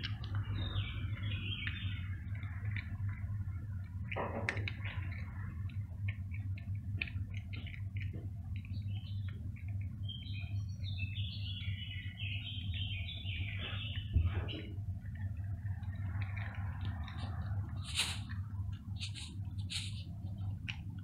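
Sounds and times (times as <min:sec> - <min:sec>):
bird chirping: 0:00.0 - 0:03.4, 0:08.6 - 0:18.3
cat crunching dry kibble: 0:00.0 - 0:10.0, 0:14.8 - 0:21.0
steady low hum: 0:00.0 - 0:21.0.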